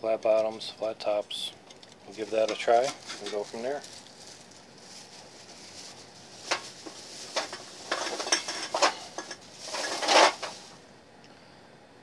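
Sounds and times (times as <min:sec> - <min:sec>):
plastic bag rustling: 0:02.0 - 0:10.9
cans clinking: 0:07.4 - 0:10.5.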